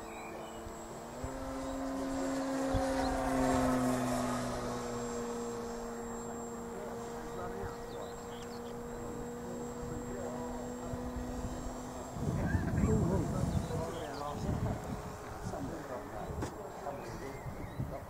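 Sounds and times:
electric motor and propeller humming: 0:00.0 - 0:18.0.

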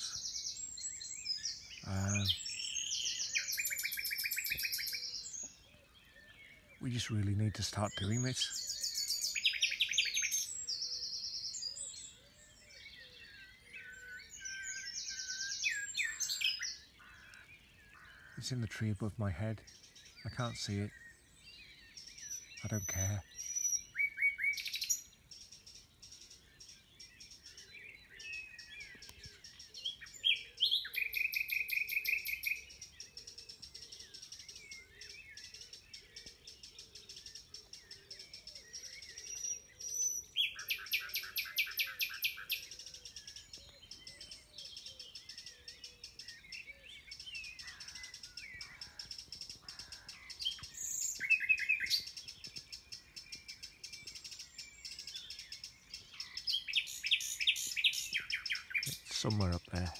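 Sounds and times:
nightingale singing: 0:00.0 - 0:59.9
other birds calling: 0:00.0 - 0:59.9.

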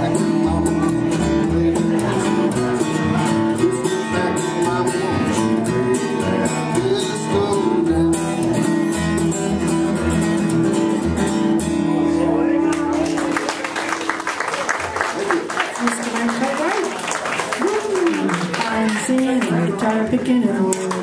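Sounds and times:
plucked double bass: 0:00.0 - 0:12.9
strummed acoustic guitar: 0:00.0 - 0:14.4.

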